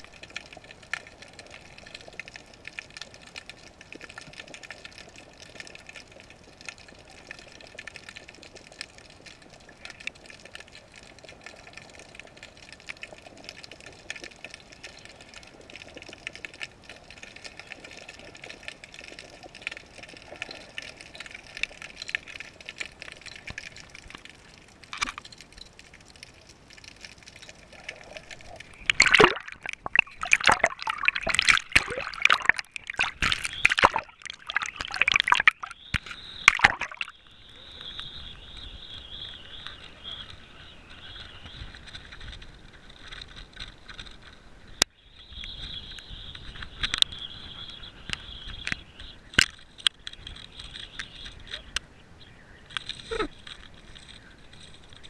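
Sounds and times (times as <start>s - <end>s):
water splashing against camera: 0.0s - 37.2s, 52.7s - 55.0s.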